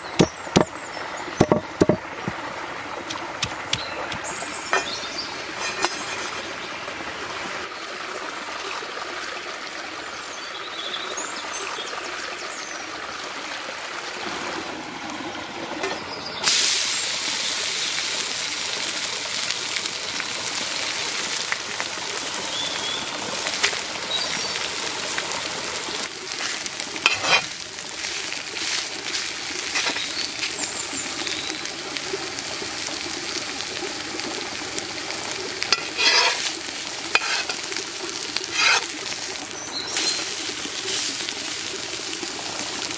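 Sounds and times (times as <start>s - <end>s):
metal spatula scraping pan: 4.7s - 6.6s, 27.0s - 27.5s, 29.7s - 30.2s, 35.7s - 36.5s, 37.1s - 37.6s, 38.4s - 38.9s
fat sizzling on pan: 16.4s - 42.9s
steak frying sizzle: 16.4s - 42.9s.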